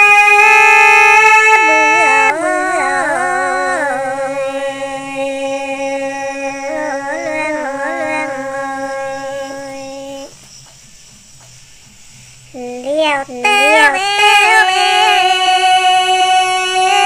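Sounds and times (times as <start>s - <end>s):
women singing folk duet: 1.5s - 10.3s, 13.4s - 17.0s.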